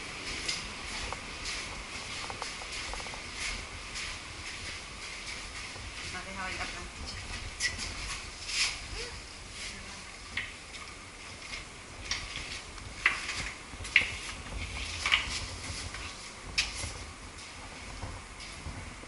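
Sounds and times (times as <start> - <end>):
footsteps on clinking stones: 0.0 - 8.8.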